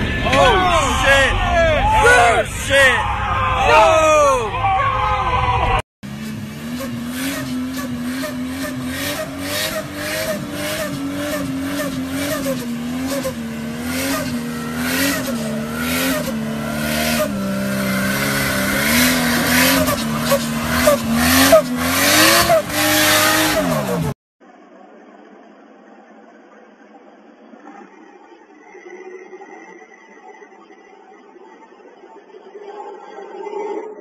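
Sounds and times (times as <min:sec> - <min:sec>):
tyres spinning: 0:00.0 - 0:24.2
engine revving hard: 0:05.4 - 0:24.2.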